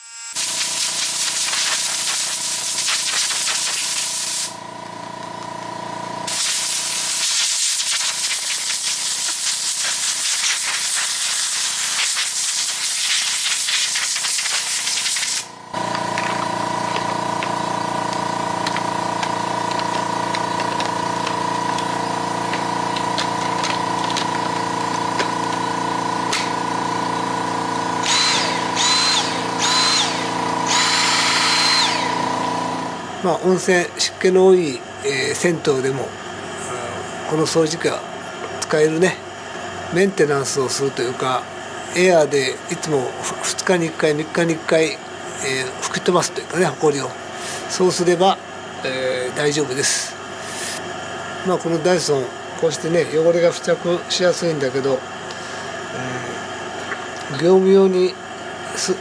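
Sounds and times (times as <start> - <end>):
compressed air hissing: 0.4 - 4.6, 6.3 - 15.5, 50.4 - 50.8
motor hum: 14.6 - 33.9
short high whines: 28.0 - 33.1.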